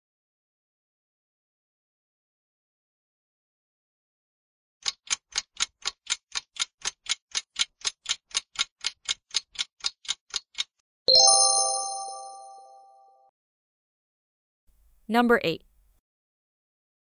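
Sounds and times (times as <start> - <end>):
countdown timer ticking: 4.8 - 12.7
bright ringing chime: 11.1 - 13.0.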